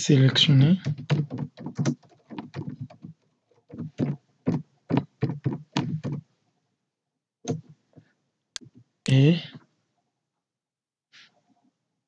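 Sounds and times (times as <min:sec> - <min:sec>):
computer keyboard typing: 0:00.8 - 0:06.2.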